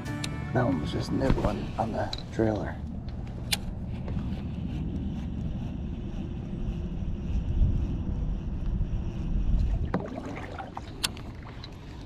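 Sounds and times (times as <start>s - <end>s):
wind buffeting microphone: 1.2s - 12.0s.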